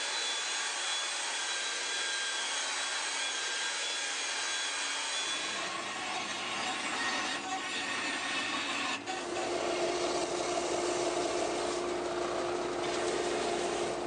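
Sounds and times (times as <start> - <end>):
belt sander sanding wood: 4.2 - 14.0.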